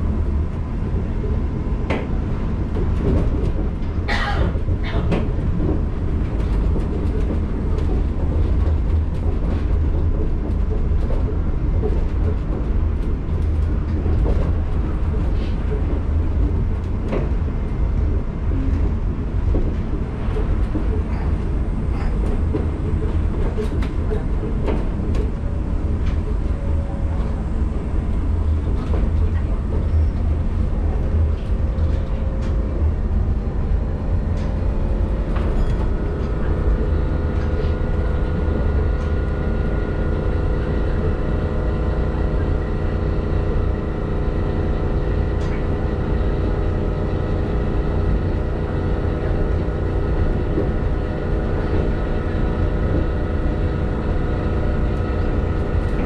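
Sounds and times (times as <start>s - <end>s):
monorail running rumble: 0.0s - 56.0s
steady whine: 19.3s - 56.0s.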